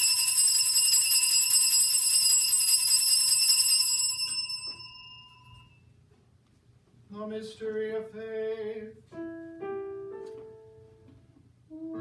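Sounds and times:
small bells shaken ringing: 0:00.0 - 0:05.8.

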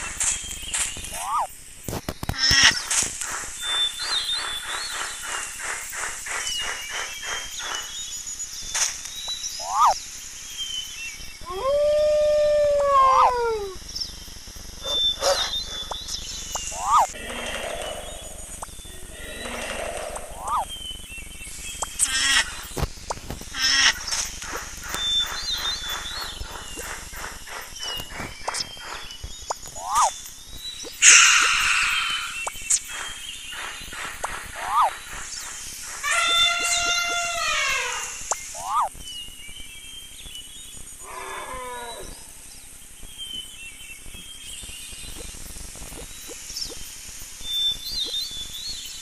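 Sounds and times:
high bird chirps: 0:00.0 - 0:01.5, 0:02.4 - 0:10.0, 0:14.8 - 0:39.0
harsh cartoon animal calls: 0:01.1 - 0:01.5, 0:09.6 - 0:10.0, 0:11.4 - 0:13.8, 0:14.8 - 0:16.0, 0:16.7 - 0:20.7, 0:29.8 - 0:30.1, 0:31.0 - 0:33.1, 0:34.2 - 0:35.0, 0:36.0 - 0:38.9
animal bellow: 0:16.8 - 0:20.6, 0:41.0 - 0:42.3.

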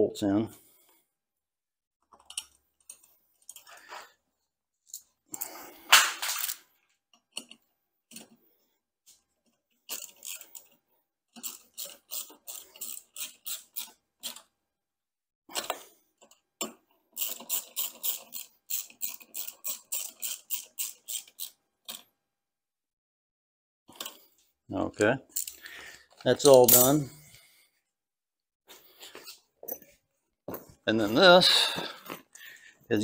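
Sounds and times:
hand ratchet clicking: 0:09.9 - 0:10.7, 0:11.4 - 0:14.4, 0:17.2 - 0:22.0.

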